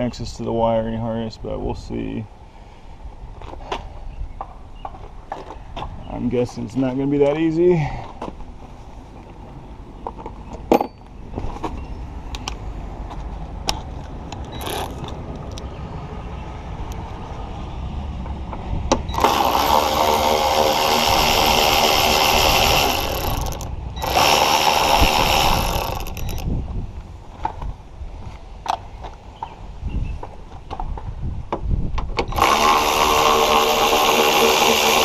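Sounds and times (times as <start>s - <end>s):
cordless ratchet motor: 14.5s - 15.2s, 19.1s - 26.5s, 32.3s - 35.0s.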